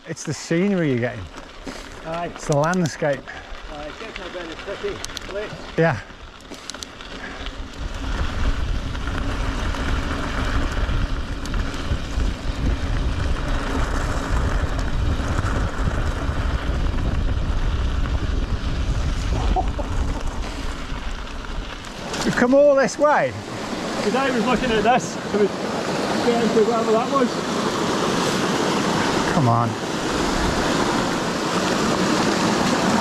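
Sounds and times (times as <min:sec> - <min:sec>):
bike tyres rolling on gravel: 0:00.0 - 0:33.0
wind buffeting microphone: 0:07.2 - 0:33.0.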